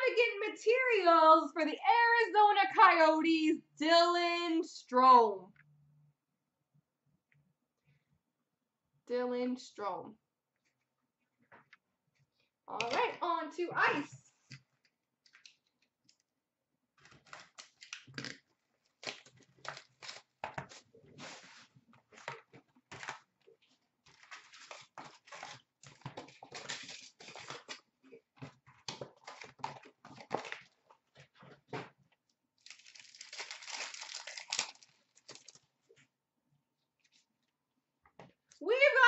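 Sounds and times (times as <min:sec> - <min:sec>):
plastic wrap crinkling: 0:17.0 - 0:28.0, 0:32.6 - 0:36.0
tearing rustle: 0:24.1 - 0:27.9, 0:32.6 - 0:35.6.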